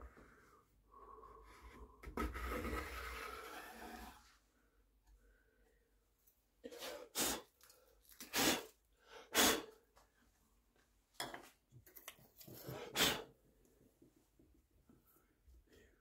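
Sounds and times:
person puffing breath: 8.2 - 9.9.

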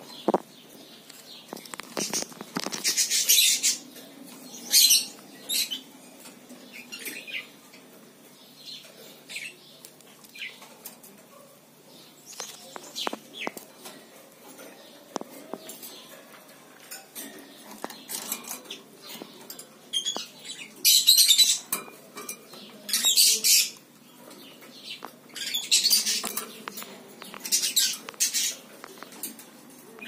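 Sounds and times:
bird chirps and clicks: 12.3 - 14.0, 17.0 - 23.1, 23.7 - 30.0.

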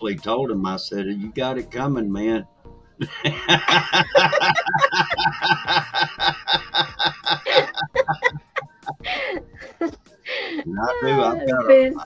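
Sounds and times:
woman laughing: 3.0 - 12.0.

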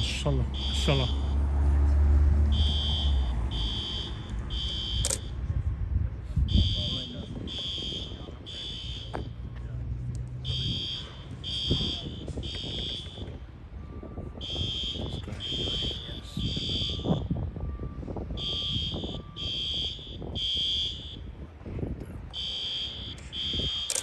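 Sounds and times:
fire alarm beeping: 2.5 - 5.3, 6.5 - 9.2, 10.4 - 21.3, 22.4 - 24.0.

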